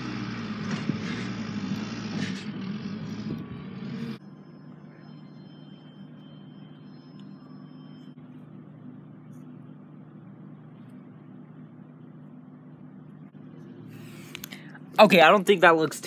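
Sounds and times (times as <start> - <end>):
low mechanical hum: 0.0 - 16.0
faint thin high tone: 4.2 - 8.4.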